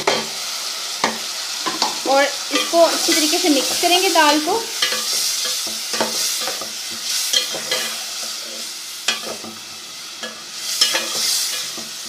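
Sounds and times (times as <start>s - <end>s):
food sizzling: 0.0s - 12.0s
spoon scraping a pot: 4.8s - 12.0s.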